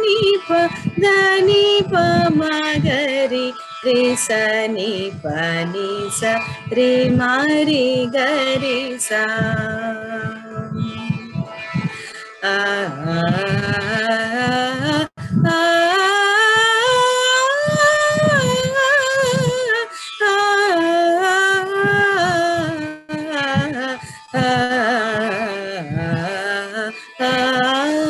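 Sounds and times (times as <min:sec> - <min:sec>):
woman singing wordless notes: 0:00.0 - 0:28.0
short breaths: 0:11.9 - 0:12.4.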